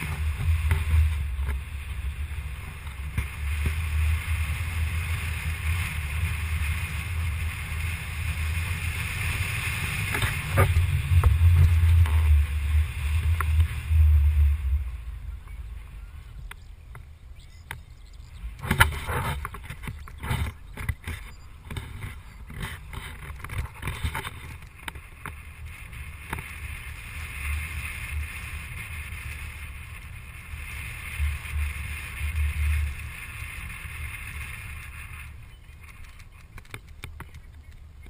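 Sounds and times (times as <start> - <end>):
steady hiss: 0.0 - 17.1
vehicle rumble: 0.0 - 38.0
wind buffeting microphone: 0.0 - 38.0.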